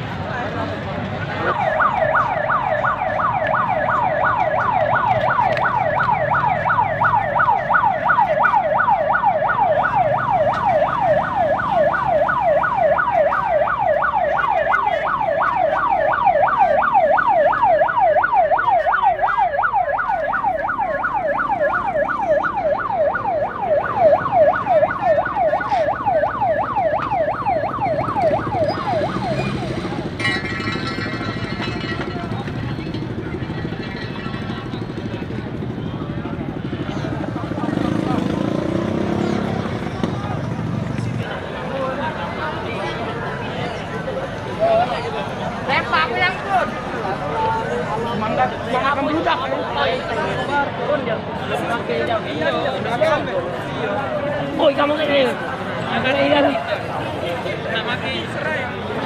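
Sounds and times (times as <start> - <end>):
police siren yelping: 1.2 - 35.7.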